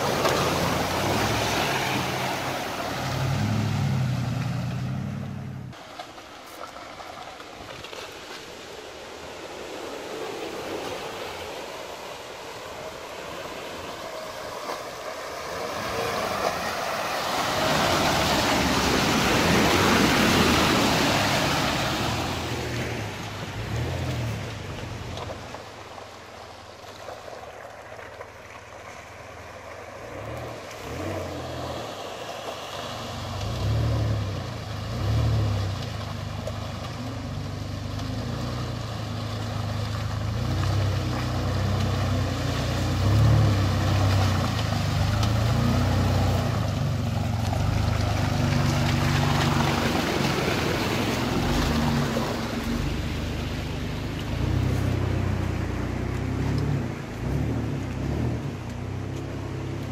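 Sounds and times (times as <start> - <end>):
vehicle engine revving: 0.0 - 5.8, 30.0 - 32.2, 32.8 - 59.9.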